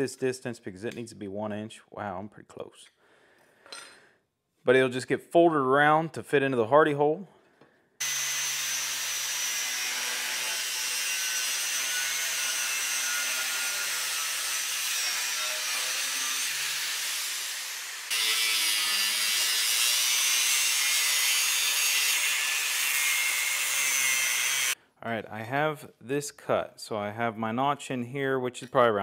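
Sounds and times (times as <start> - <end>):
angle grinder cutting steel: 8.0 - 24.8.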